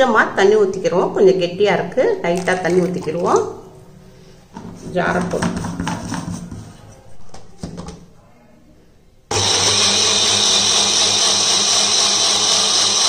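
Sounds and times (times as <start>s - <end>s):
mixer grinder motor running: 9.3s - 13.0s.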